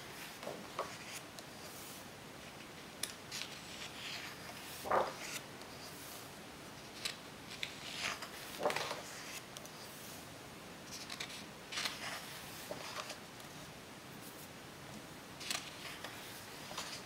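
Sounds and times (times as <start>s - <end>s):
book page turning: 0.2s - 2.0s, 3.3s - 6.1s, 6.9s - 10.0s, 11.0s - 13.2s, 15.4s - 17.0s
paper rustling: 0.2s - 2.0s, 3.3s - 6.2s, 6.8s - 10.0s, 10.9s - 13.2s, 15.4s - 17.0s.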